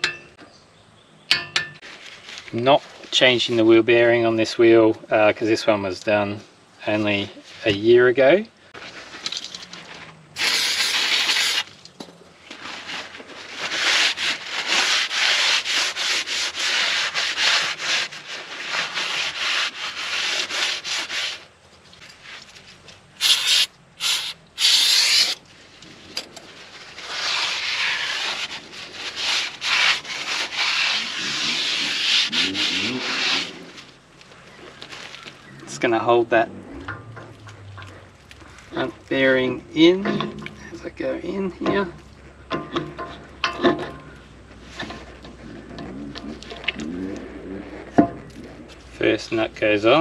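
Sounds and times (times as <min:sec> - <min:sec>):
scrubbing on a hard surface: 0:12.5 - 0:25.4, 0:26.4 - 0:34.0.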